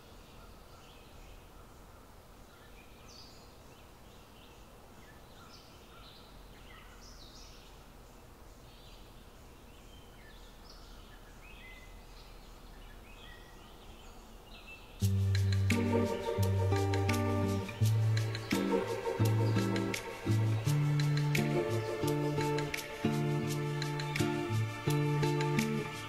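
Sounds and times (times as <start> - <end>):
low background noise: 0.0 - 26.0
birds chirping and calling: 14.5 - 26.0.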